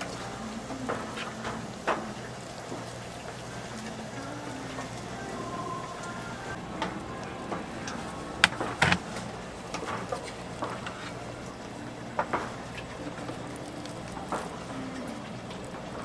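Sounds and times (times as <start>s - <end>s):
spatula scraping metal pan: 8.4s - 9.0s.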